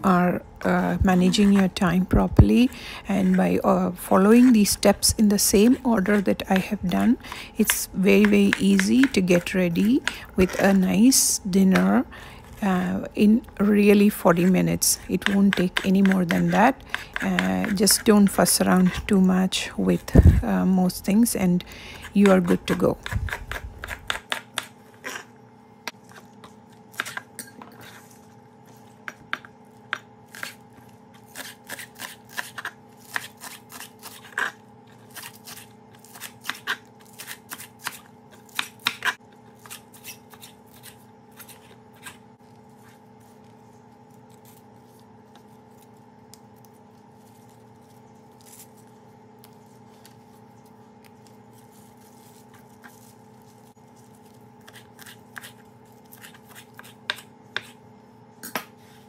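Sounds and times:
steady background hum: 0:00.0 - 0:59.0
knife chopping on wooden board: 0:15.1 - 0:17.8, 0:22.1 - 0:24.7, 0:35.2 - 0:42.2.

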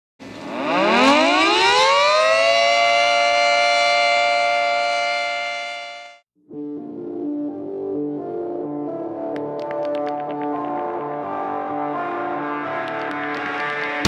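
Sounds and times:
civil defense siren wailing: 0:00.2 - 0:06.2
music: 0:06.1 - 0:14.0.

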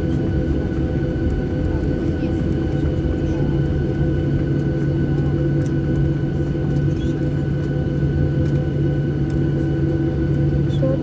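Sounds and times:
jet engines humming in cabin: 0:00.0 - 0:11.0.

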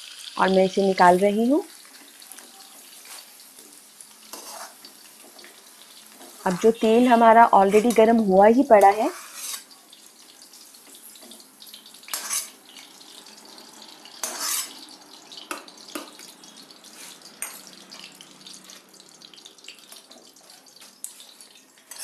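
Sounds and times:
hot oil hissing: 0:00.0 - 0:16.2, 0:16.8 - 0:19.8
spoon scraping and clinking on pan: 0:04.3 - 0:04.8, 0:09.1 - 0:09.7, 0:12.1 - 0:12.6, 0:14.2 - 0:14.8.

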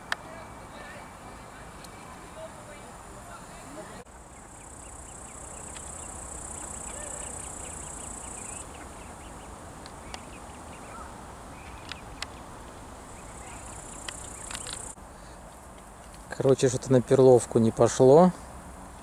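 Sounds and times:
insect buzzing: 0:04.1 - 0:10.8, 0:11.4 - 0:15.0
light clicks: 0:13.7 - 0:16.2.

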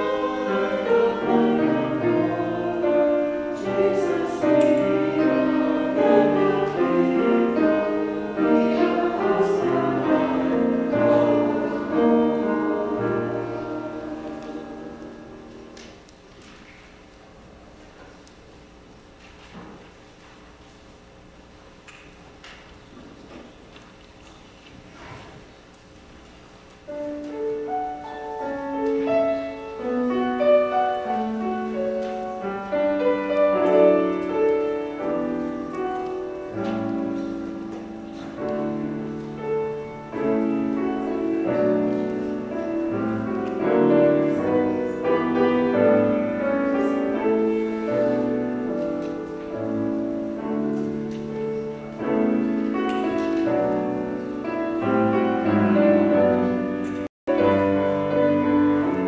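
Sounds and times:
piano music: 0:00.0 - 0:16.0, 0:26.9 - 0:59.0.

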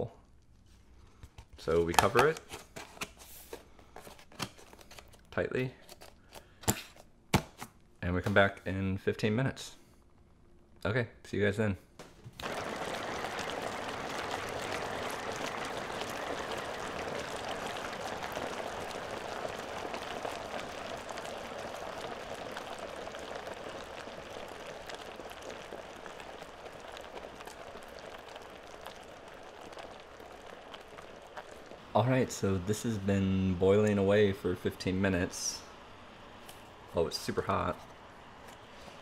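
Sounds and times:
hot pot bubbling and fizzing: 0:12.3 - 0:39.0.

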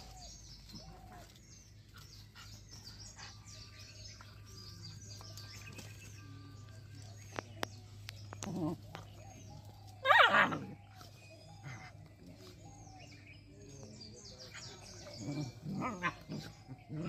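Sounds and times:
small birds chirping: 0:00.0 - 0:17.0
dogs growling: 0:08.1 - 0:17.0
dog yelping: 0:10.0 - 0:10.8.

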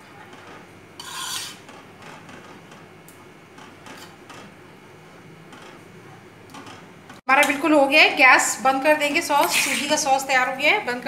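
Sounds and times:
spoon scraping a pan: 0:01.0 - 0:01.7.

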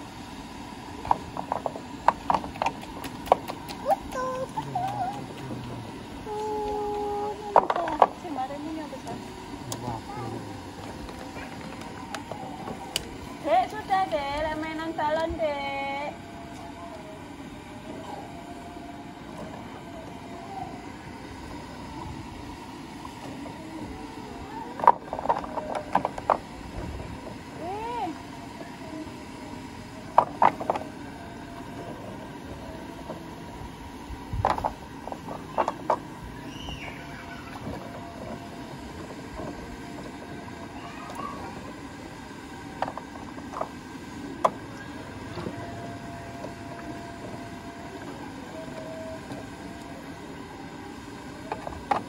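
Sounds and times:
steady rush of steam: 0:00.0 - 0:48.6
steady low background noise: 0:00.0 - 0:52.0
faint steamer whistle: 0:36.4 - 0:38.8, 0:44.8 - 0:51.6.

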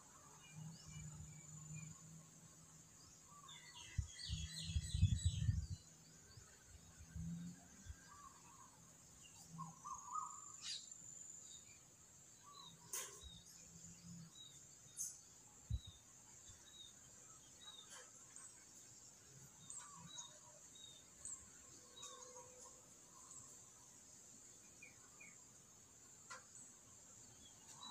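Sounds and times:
high insect buzz: 0:00.0 - 0:27.9
bird chirps and calls: 0:09.3 - 0:11.0.

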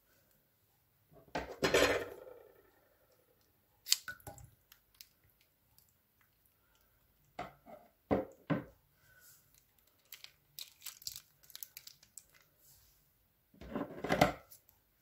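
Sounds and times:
plastic piping bag crinkling: 0:09.5 - 0:12.6.

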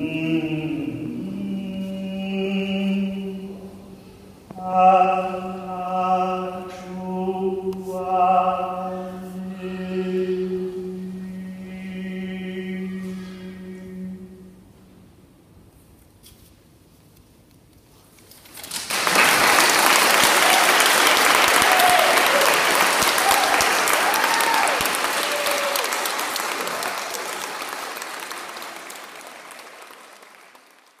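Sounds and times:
vocal quartet singing: 0:00.0 - 0:14.6
audience applauding: 0:18.6 - 0:31.0
short cheers: 0:20.1 - 0:27.8.

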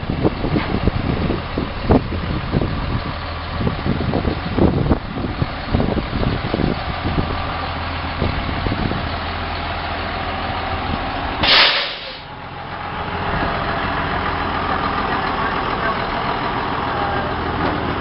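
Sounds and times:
truck diesel engine idling: 0:00.0 - 0:18.0
air brake hiss: 0:11.4 - 0:12.3.

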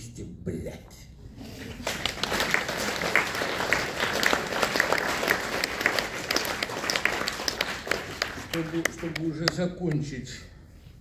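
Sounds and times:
audience applause: 0:01.7 - 0:09.6.

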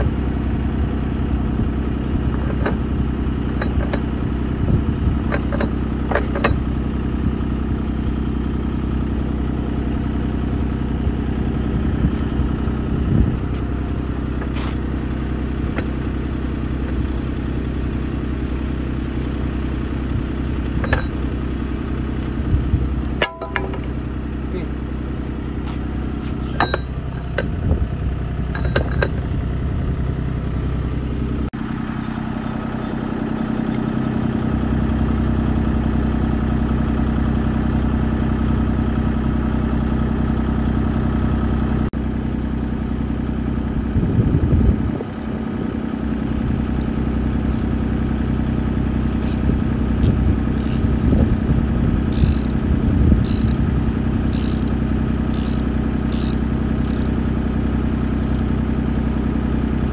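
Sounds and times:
diesel engine idling: 0:00.0 - 0:59.9
metal clatter: 0:28.5 - 0:29.3.

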